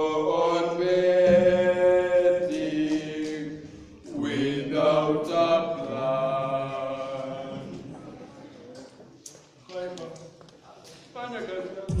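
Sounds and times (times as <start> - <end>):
chant-like singing: 0.0 - 8.2.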